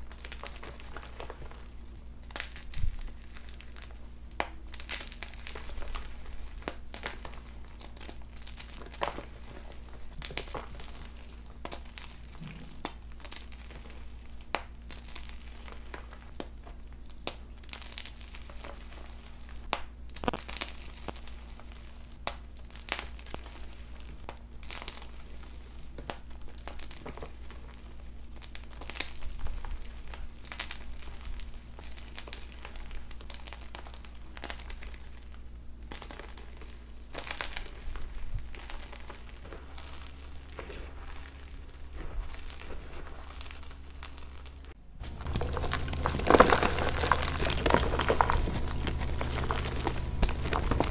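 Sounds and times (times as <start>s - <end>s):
steady low hum: 0.0s - 50.9s
chalk crunching in hands: 26.2s - 50.9s.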